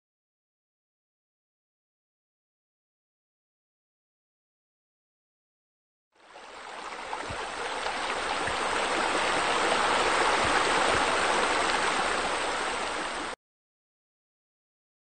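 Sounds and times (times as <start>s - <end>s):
running splashing water: 6.3s - 13.4s.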